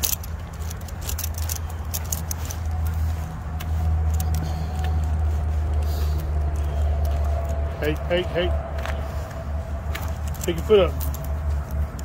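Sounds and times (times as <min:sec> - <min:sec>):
metallic clinks and jingles: 0:00.0 - 0:05.3, 0:10.0 - 0:12.0.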